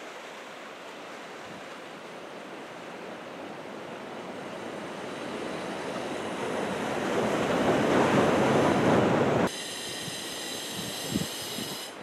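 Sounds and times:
big waves breaking: 0:00.0 - 0:12.0
steady hiss: 0:04.4 - 0:12.0.

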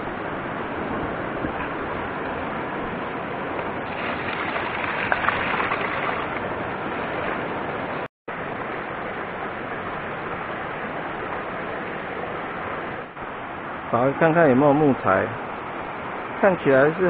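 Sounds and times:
stream running over rocks: 0:03.3 - 0:10.2
water splashing close by: 0:03.8 - 0:07.6.

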